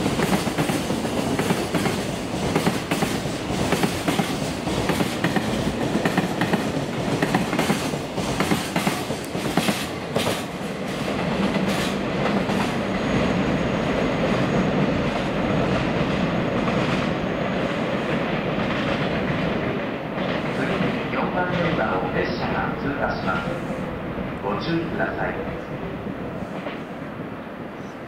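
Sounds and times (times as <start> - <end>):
train wheels clicking over rails: 0.0 - 22.1
train rumble: 0.0 - 28.0.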